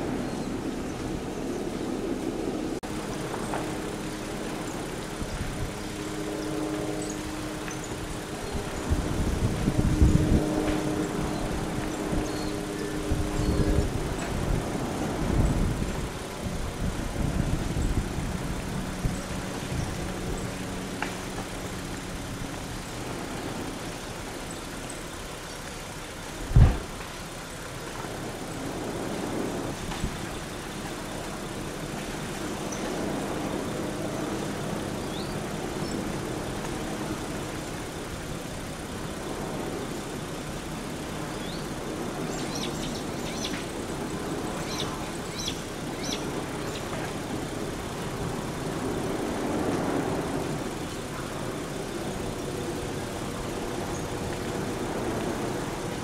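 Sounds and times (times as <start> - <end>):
lava flow steady noise: 0.0 - 56.0
loud thump: 26.6 - 26.8.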